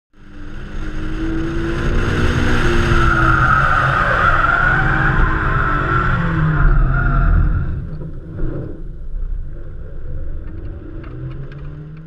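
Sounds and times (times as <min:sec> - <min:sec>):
heavy low rumble: 0:06.4 - 0:12.0.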